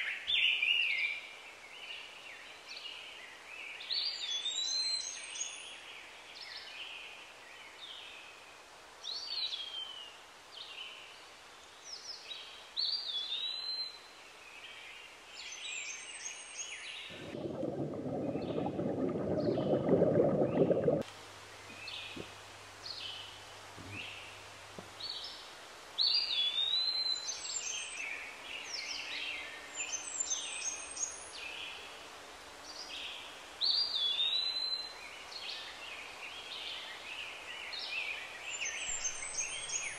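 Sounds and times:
rushing stream water: 17.1 - 21.0.

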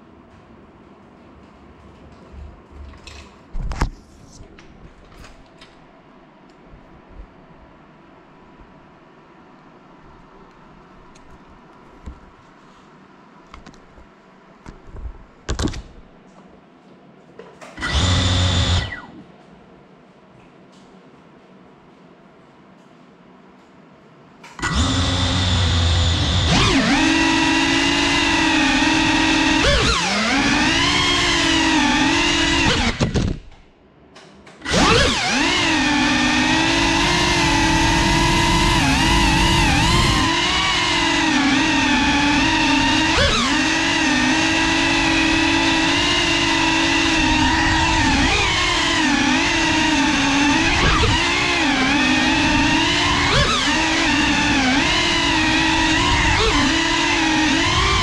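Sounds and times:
drone motors whirring: 17.8 - 19.2, 24.6 - 33.5, 34.6 - 58.0.

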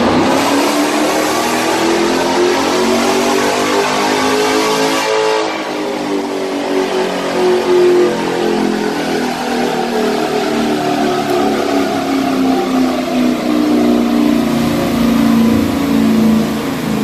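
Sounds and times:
car engine at high revs: 0.0 - 17.0.

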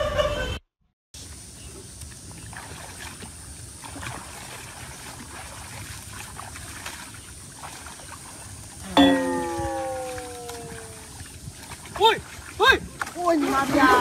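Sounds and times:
outdoor hiss: 1.2 - 4.5
water sloshing and splashing: 2.1 - 14.0.

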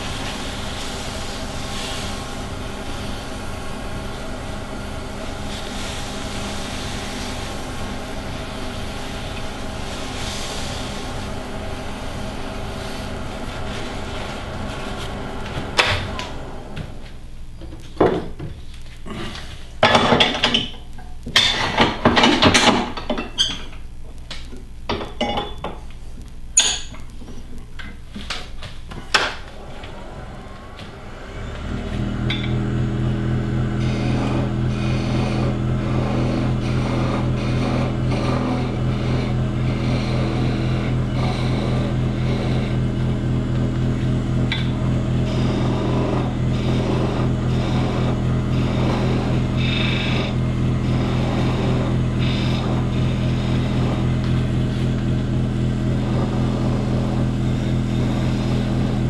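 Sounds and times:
tool cutting spinning wood: 0.0 - 17.1, 29.4 - 59.0
lathe motor humming: 0.0 - 17.6, 29.4 - 59.0.

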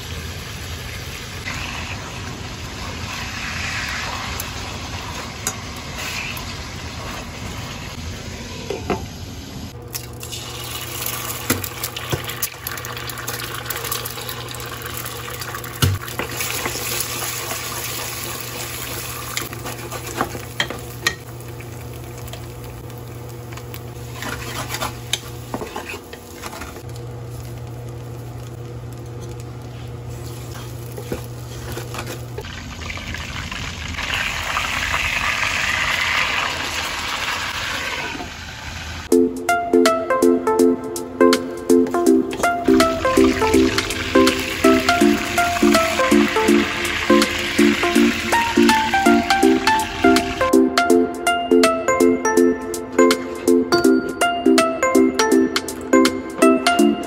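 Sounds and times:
eggs sizzling in oil: 0.0 - 9.1, 10.1 - 39.1, 42.7 - 50.5
chicken frying in hot oil: 0.0 - 39.1, 42.9 - 50.3
utensil scraping a pot: 24.1 - 26.7.

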